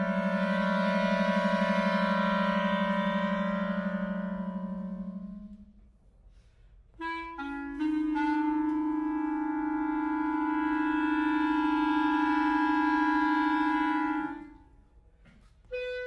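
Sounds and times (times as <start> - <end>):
clarinets playing chords: 0.0 - 5.8.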